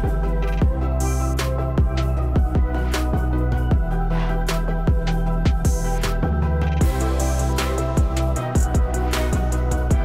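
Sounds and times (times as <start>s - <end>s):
electronic music with heavy beat: 0.0s - 10.0s
deep kick drums: 0.6s - 1.0s, 1.8s - 4.0s, 4.8s - 6.0s, 6.8s - 10.0s.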